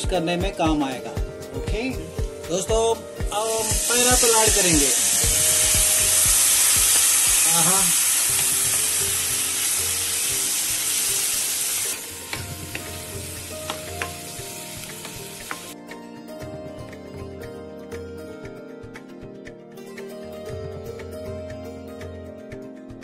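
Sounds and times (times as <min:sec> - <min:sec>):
food sizzling in hot oil: 0:03.3 - 0:15.8.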